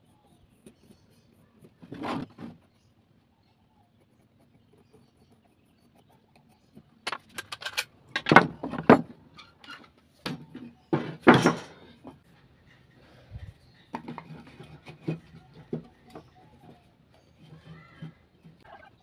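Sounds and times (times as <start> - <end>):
wooden blocks clattering: 7.1 - 9.1.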